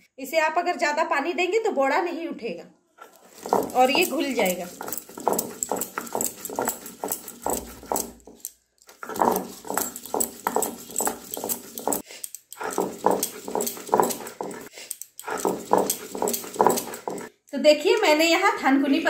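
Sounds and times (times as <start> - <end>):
stone roller scraping on stone slab: 3.0 - 12.0, 12.6 - 17.3.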